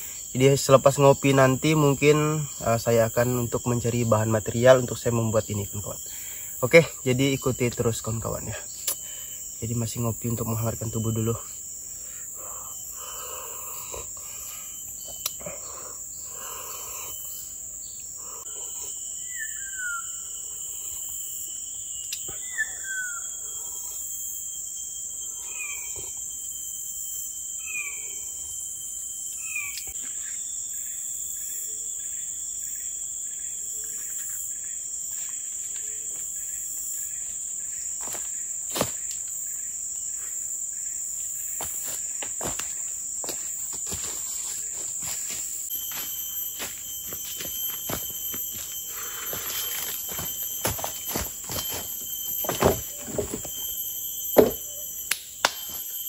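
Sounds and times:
insects chorus: 0:00.0 - 0:56.0
bird whistling: 0:19.2 - 0:20.3, 0:22.3 - 0:23.5.

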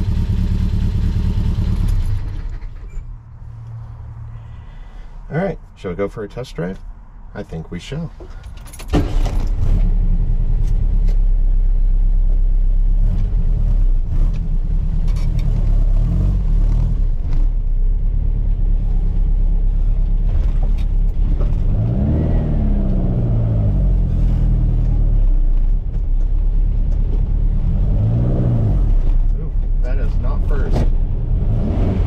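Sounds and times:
car engine revving: 0:12.9 - 0:25.3, 0:27.3 - 0:29.3, 0:29.9 - 0:32.0.

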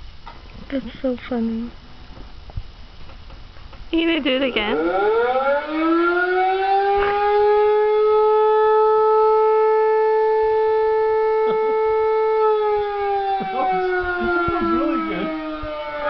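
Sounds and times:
siren wailing: 0:04.4 - 0:16.0.

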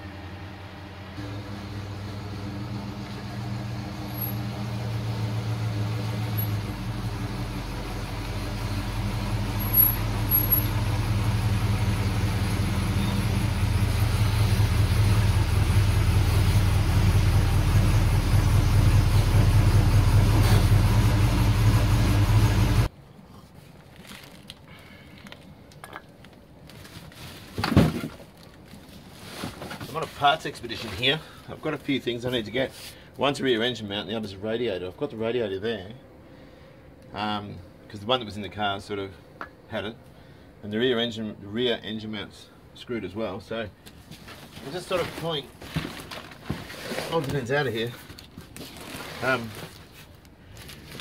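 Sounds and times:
car engine rumbling: 0:00.0 - 0:22.9.

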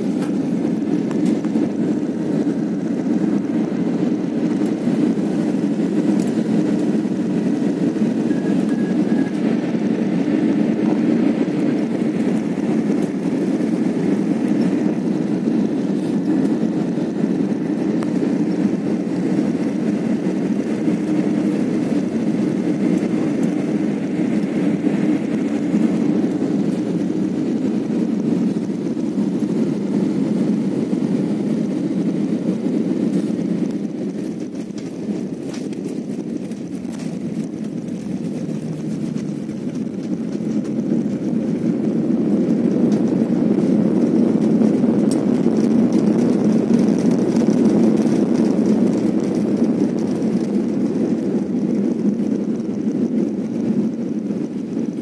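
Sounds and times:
airliner engines and airflow rushing: 0:00.0 - 0:55.0.

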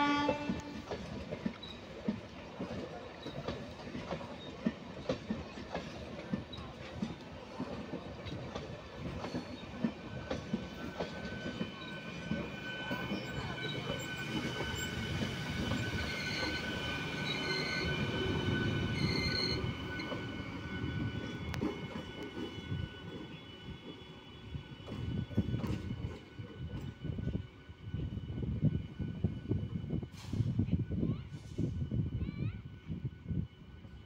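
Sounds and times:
high-pitched wheel squeal: 0:10.8 - 0:21.8.

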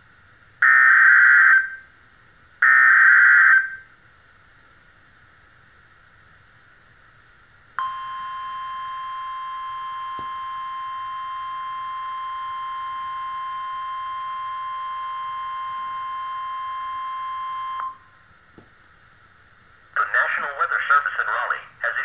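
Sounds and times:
steady alarm tone: 0:07.8 - 0:18.1.

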